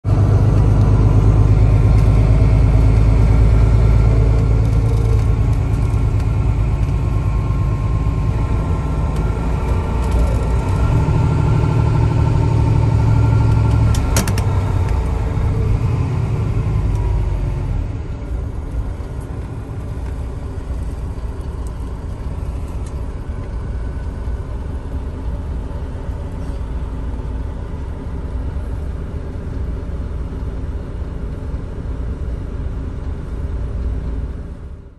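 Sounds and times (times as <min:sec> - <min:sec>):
bus engine rumble: 0:00.0 - 0:34.9.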